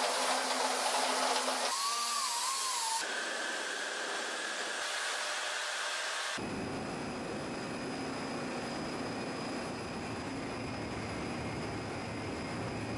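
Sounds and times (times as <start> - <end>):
power tool hiss: 0.0 - 6.4
faint even whine: 6.4 - 12.9.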